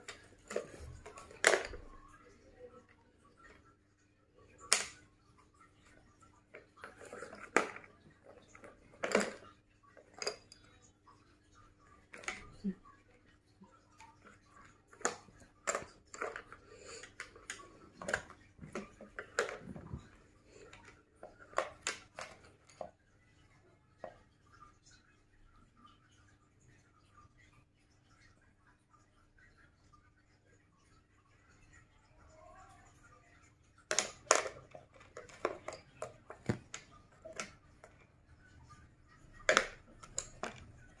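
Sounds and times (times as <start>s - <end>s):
plastic clicks and taps: 33.8s - 38.1s, 39.3s - 41.0s.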